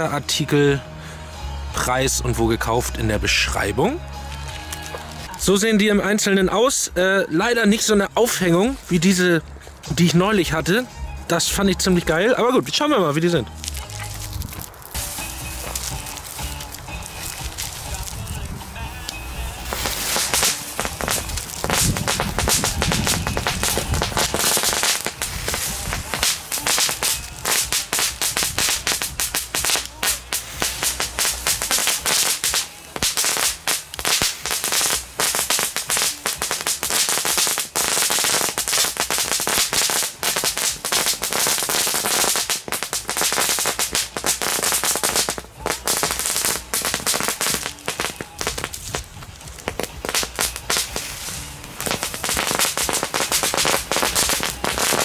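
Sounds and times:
firework crackling pops: 13.2s - 55.0s.

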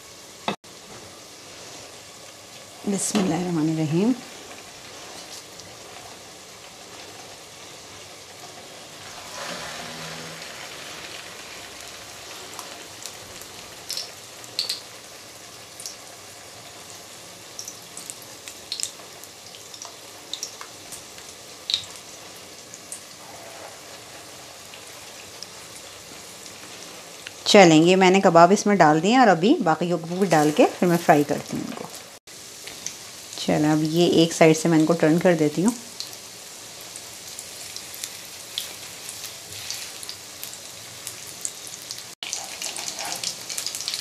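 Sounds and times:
food sizzling in oil: 0.0s - 44.0s
oil popping and crackling: 1.9s - 15.0s, 17.6s - 27.5s, 35.6s - 44.0s.

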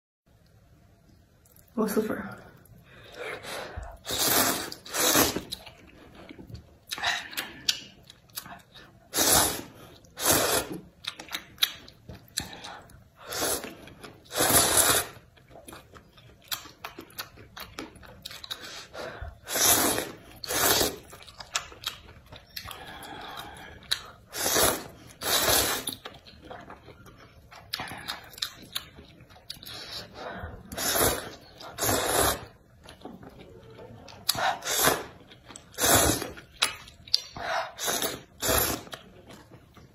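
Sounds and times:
noodles being slurped: 3.3s - 5.6s, 9.1s - 10.8s, 13.2s - 15.3s, 18.5s - 21.2s, 24.2s - 26.0s, 29.6s - 32.6s, 34.3s - 36.8s, 37.7s - 39.1s.

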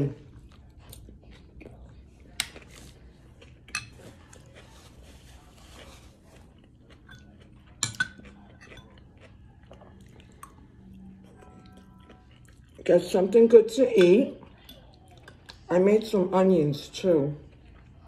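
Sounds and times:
quiet chewing: 0.0s - 12.9s, 14.4s - 15.7s, 17.4s - 18.0s
fork clinking against bowl: 3.7s - 4.0s, 7.1s - 9.0s.

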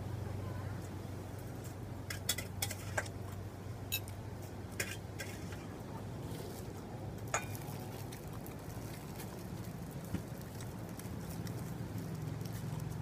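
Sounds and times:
plastic bag crinkling: 7.5s - 13.0s.

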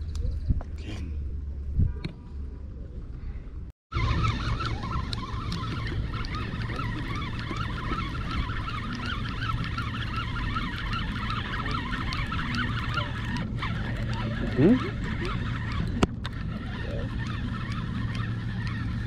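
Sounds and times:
birds chirping and whistling: 4.0s - 16.1s.

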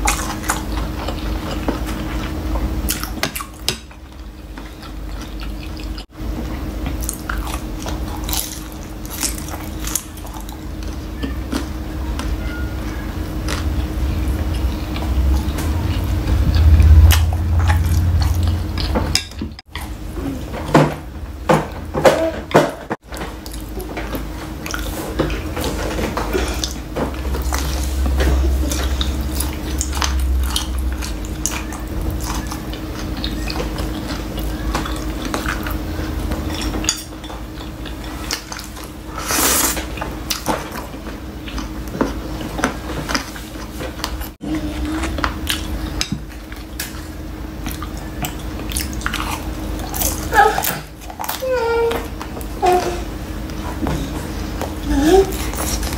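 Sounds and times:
wet chewing: 0.0s - 6.1s, 6.9s - 20.5s, 23.2s - 55.9s
low hum: 0.0s - 21.7s, 24.6s - 39.1s.

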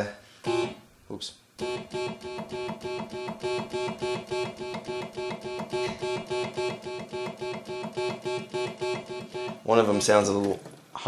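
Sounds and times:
synthesizer repeating plucky note: 0.5s - 0.8s, 1.6s - 9.8s.

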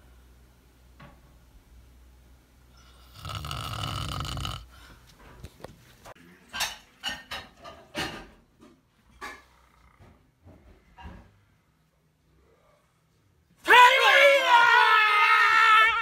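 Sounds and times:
man snoring: 2.8s - 4.8s.

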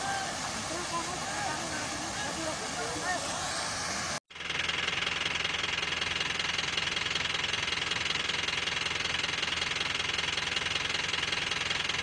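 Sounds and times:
high-pitched hiss: 0.0s - 4.2s.

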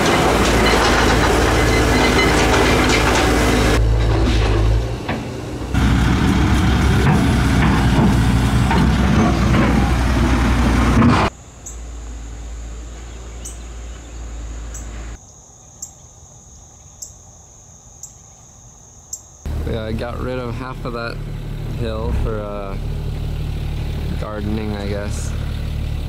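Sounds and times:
excavator diesel engine under load: 0.0s - 11.4s, 19.5s - 26.0s
insects chirping: 11.3s - 21.8s.

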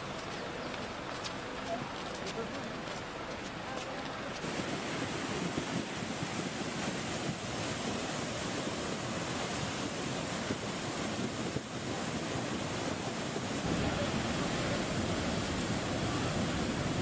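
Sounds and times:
floodwater rushing: 4.3s - 17.0s.

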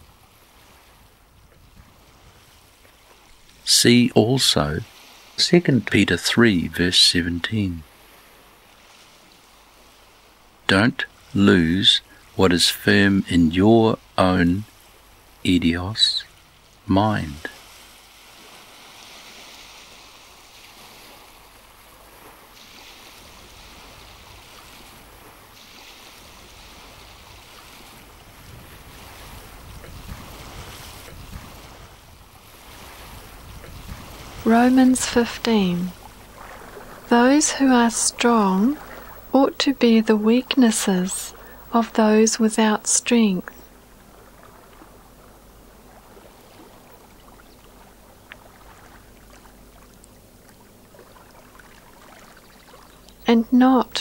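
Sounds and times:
water lapping and trickling: 0.0s - 54.0s
faint low hum: 33.2s - 54.0s.

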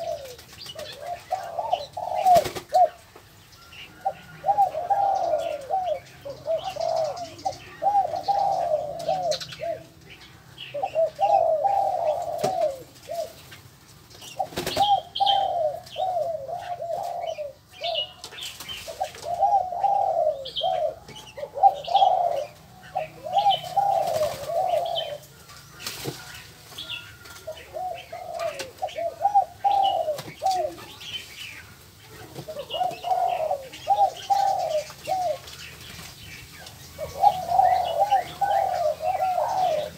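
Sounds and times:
doves cooing: 0.0s - 39.9s
small birds chirping: 0.0s - 39.9s.

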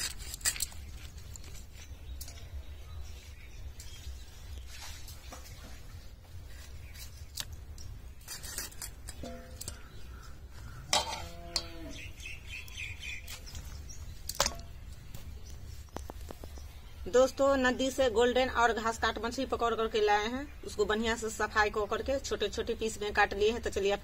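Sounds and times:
steel bowl ringing: 9.2s - 9.8s.

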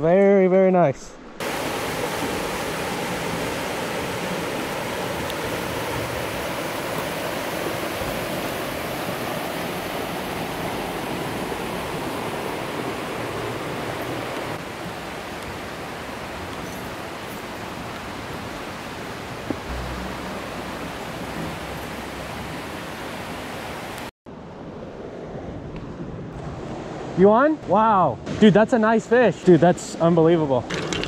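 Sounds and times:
stream rushing over rocks: 1.4s - 24.1s.

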